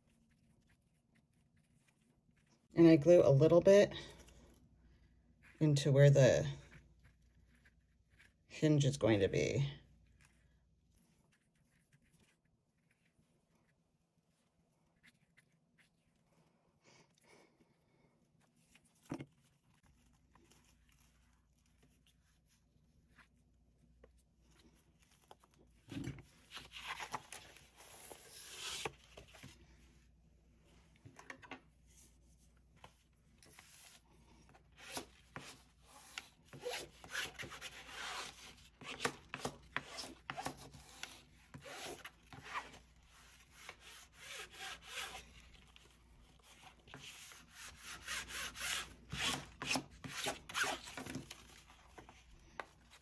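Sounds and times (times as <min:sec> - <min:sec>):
bone folder scraping bookcloth: 0:24.5 - 0:29.8, 0:32.8 - 0:53.0.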